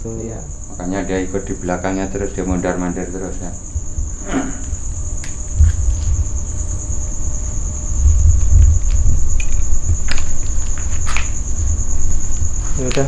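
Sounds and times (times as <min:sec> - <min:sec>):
crickets trilling: 0:00.0 - 0:13.0
low rumble: 0:03.6 - 0:12.6.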